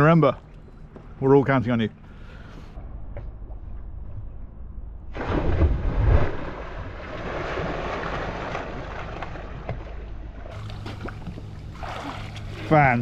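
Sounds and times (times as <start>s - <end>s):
heavy splash into water: 5.1s - 9.9s
churned water fizzing: 6.2s - 13.0s.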